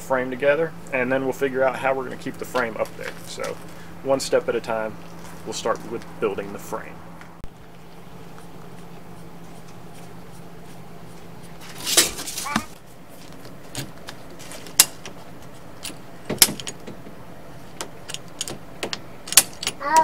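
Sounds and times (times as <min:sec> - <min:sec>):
hand tool clicks and taps: 0:17.8 - 0:20.0.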